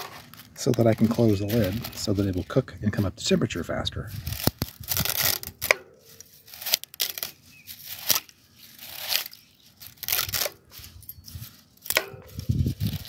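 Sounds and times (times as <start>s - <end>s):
dry spaghetti snapping: 4.2s - 10.8s, 11.7s - 13.0s.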